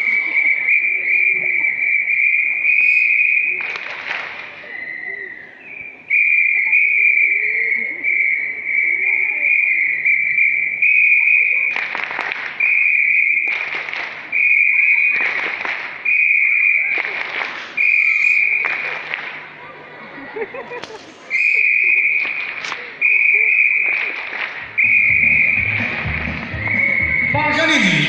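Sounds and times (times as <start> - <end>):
high whistle-like tone: 0.0 - 3.6, 17.8 - 18.6, 24.7 - 27.4.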